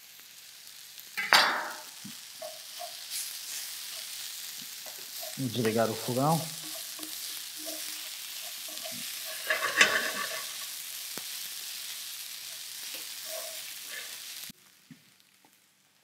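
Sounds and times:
food sizzling in a frying pan: 0.0 - 16.0
wooden spoon scraping a pan: 2.1 - 10.9, 12.4 - 14.5.

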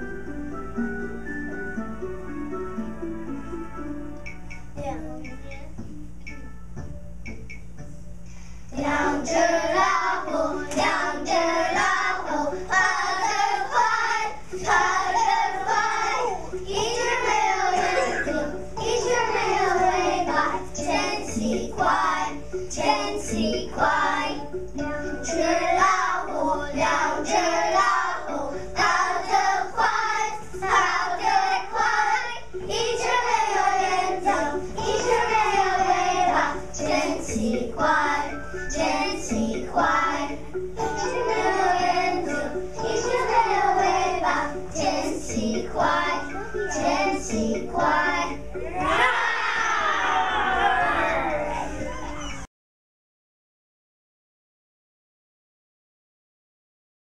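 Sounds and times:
children singing in unison: 8.8 - 52.4.

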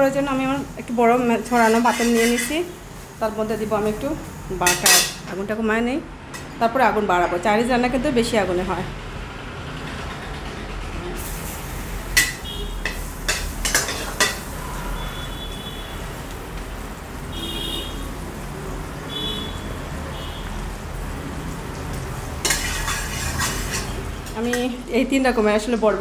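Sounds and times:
butter sizzling in a pan: 22.0 - 24.4.

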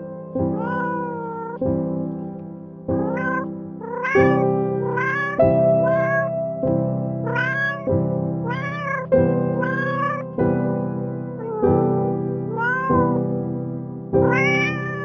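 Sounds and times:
kitten meowing: 0.5 - 1.6, 3.0 - 6.3, 7.2 - 10.7, 11.3 - 13.3, 14.2 - 15.0.

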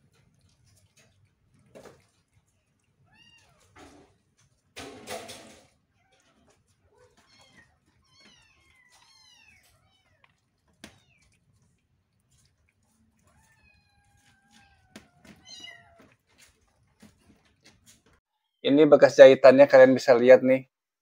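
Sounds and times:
cat eating from plastic bowl: 0.0 - 18.2
cat meowing faintly: 3.0 - 4.0, 5.9 - 11.4, 13.2 - 16.2.

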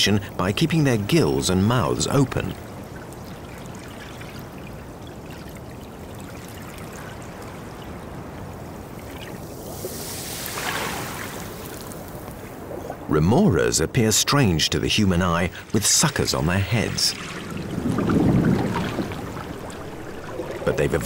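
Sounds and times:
water rushing and trickling: 0.0 - 13.5, 14.4 - 21.0.

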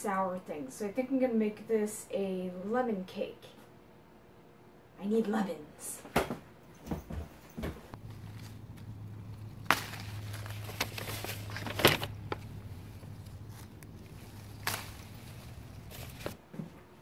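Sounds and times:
steady low hum: 7.5 - 17.0
leaves and stems snapping: 8.0 - 16.4.

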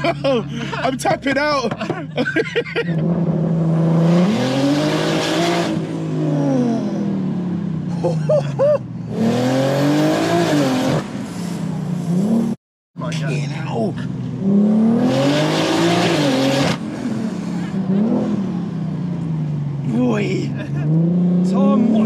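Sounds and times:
car engine accelerating hard: 2.9 - 12.6, 13.9 - 22.0.

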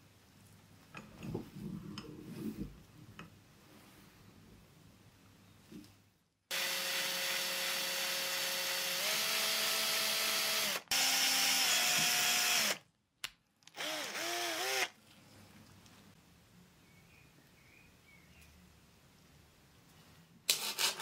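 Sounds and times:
electric drill drilling into metal: 6.5 - 12.8, 13.7 - 14.9.

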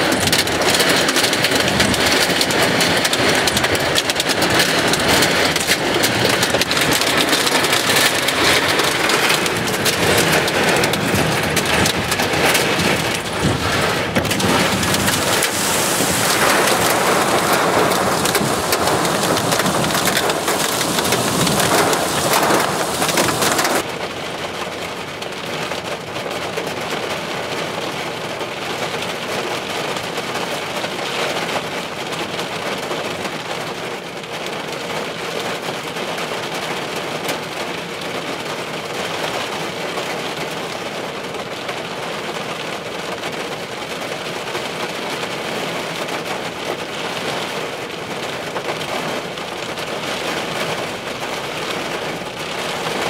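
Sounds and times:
steady rain hiss: 0.0 - 23.8.

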